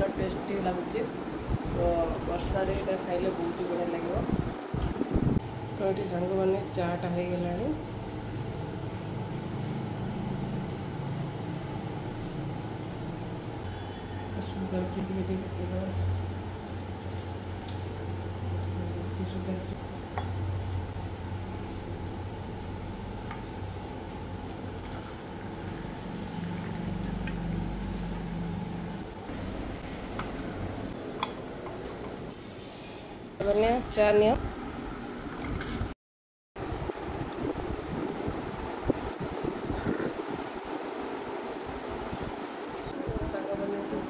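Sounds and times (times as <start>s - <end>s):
milk boiling in saucepan: 20.2s - 29.8s
tea pouring through strainer: 24.5s - 28.2s.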